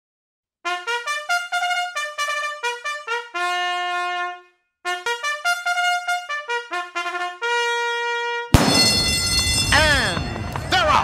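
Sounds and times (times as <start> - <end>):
solo trumpet fanfare melody: 0.6 - 10.0.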